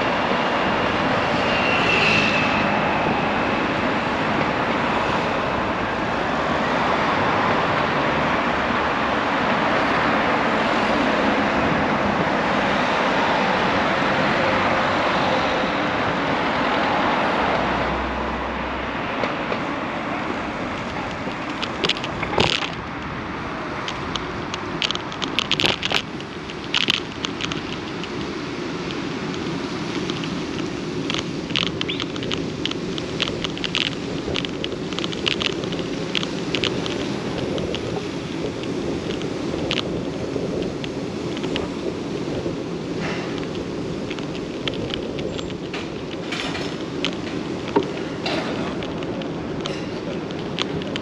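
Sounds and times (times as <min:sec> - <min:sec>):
rolling and wind noise: 0:00.0 - 0:51.0
crackling clicks and rattles: 0:19.2 - 0:51.0.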